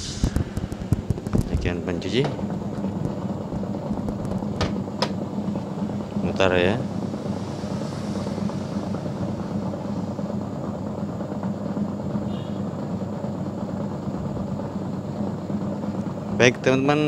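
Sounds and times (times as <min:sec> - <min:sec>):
washing machine motor humming: 0:00.0 - 0:17.0.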